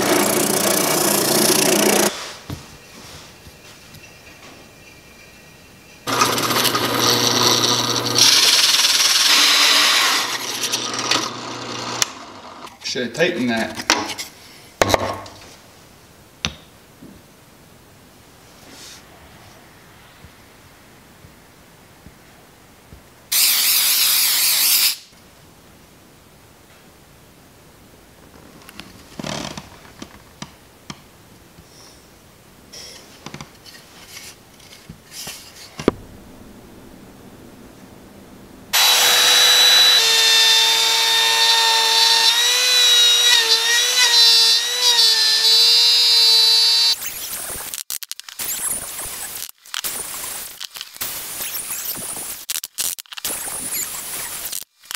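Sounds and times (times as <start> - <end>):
drill motor humming: 0.0 - 2.1, 6.1 - 12.7, 38.8 - 47.0
hole saw rasping through wood: 0.0 - 2.1, 6.1 - 12.1, 38.8 - 47.0
rubbing and rustling: 2.1 - 4.9, 32.8 - 35.9.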